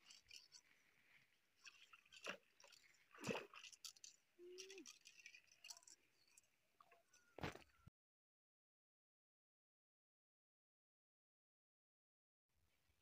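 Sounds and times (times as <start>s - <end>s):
faint clicks and rustles: 0.0s - 7.8s.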